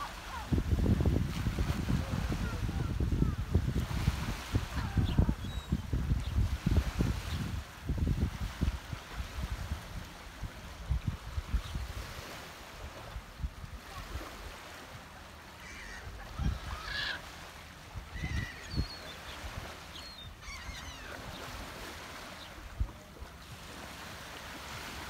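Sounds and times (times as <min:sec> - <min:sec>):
gulls calling: 0:00.0 - 0:00.6, 0:13.8 - 0:22.7
wind thumps on microphone: 0:00.5 - 0:09.8.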